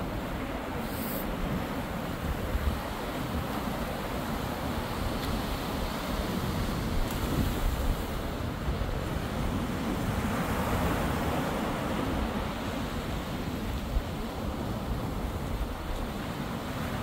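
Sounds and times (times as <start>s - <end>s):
ocean surf washing ashore: 0.0s - 17.0s
wind rumbling on microphone: 0.0s - 17.0s.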